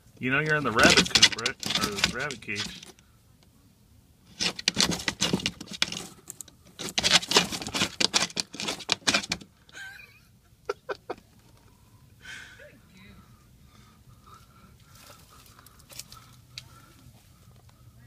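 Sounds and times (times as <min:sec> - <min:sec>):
hen scratching in dry leaves: 0:04.3 - 0:09.3.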